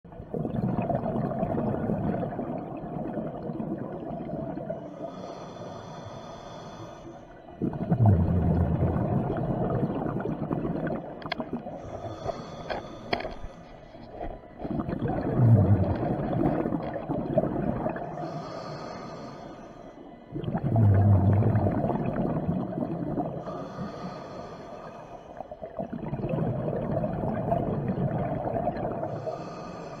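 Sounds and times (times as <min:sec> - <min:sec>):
exhaled bubbles gurgling: 0:00.0 - 0:05.4, 0:07.4 - 0:12.5, 0:14.1 - 0:18.6, 0:20.3 - 0:30.0
regulator hissing inhale: 0:04.8 - 0:07.4, 0:11.8 - 0:14.2, 0:18.0 - 0:20.3, 0:23.4 - 0:25.6, 0:29.0 - 0:30.0.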